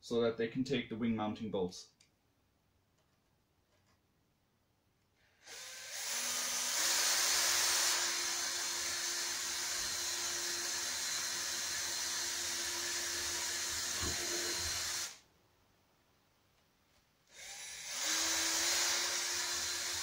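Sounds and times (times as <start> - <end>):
cordless drill running: 5.4 - 15.2, 17.3 - 20.0.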